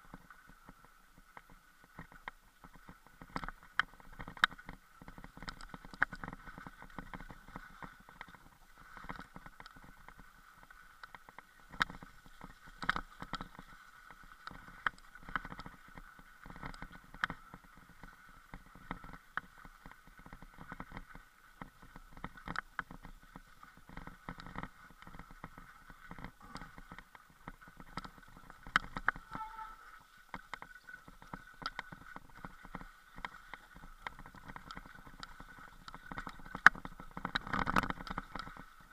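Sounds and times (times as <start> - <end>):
camera knocks and rattles: 34.0 - 38.7.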